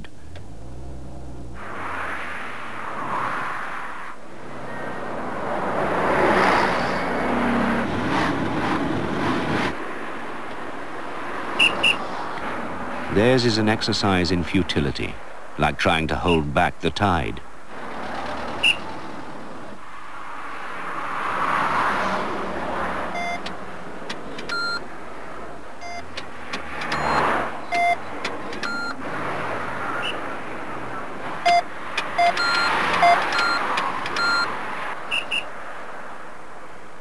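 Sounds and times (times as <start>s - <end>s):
cars passing by: 0.0s - 37.0s
short electronic beeps: 27.0s - 28.0s, 31.5s - 33.6s, 34.2s - 34.5s.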